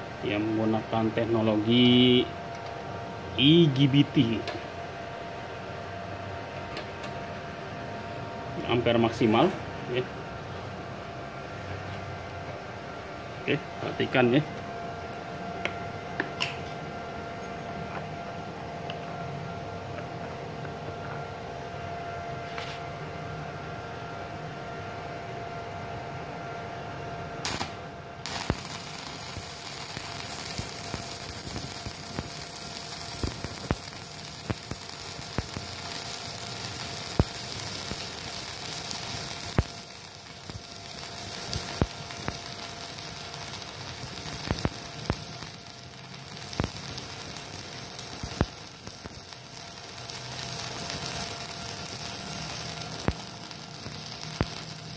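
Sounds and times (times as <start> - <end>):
welder hum: 27.4 - 54.9
welding arc crackling sizzle: 27.4 - 54.9.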